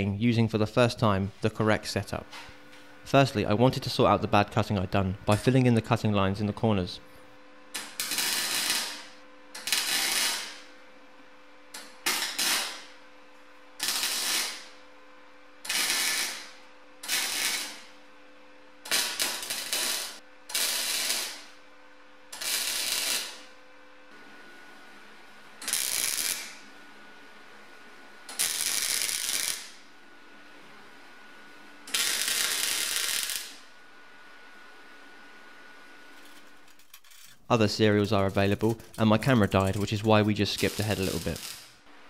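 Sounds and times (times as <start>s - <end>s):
welder crackling: 7.8s - 10.6s, 13.8s - 14.7s, 15.7s - 17.8s, 18.9s - 21.4s, 22.3s - 23.4s, 25.6s - 26.6s, 28.3s - 29.8s, 31.9s - 33.6s, 37.3s - 41.8s.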